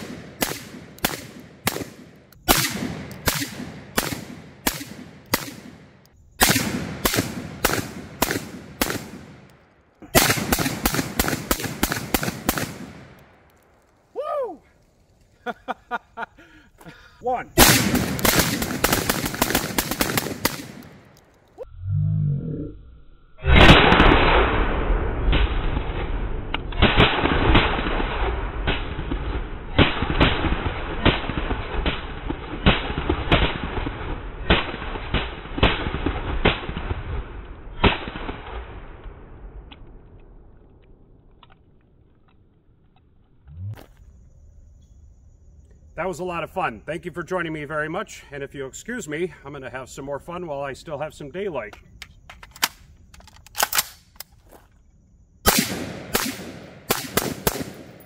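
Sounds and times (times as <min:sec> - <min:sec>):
rapid shotgun shots echoing: 0:00.0 - 0:09.5, 0:10.1 - 0:13.2, 0:17.6 - 0:21.2, 0:26.8 - 0:37.2, 0:55.5 - 0:58.0
man laughing: 0:15.4 - 0:17.2
low rumble: 0:21.6 - 0:26.7.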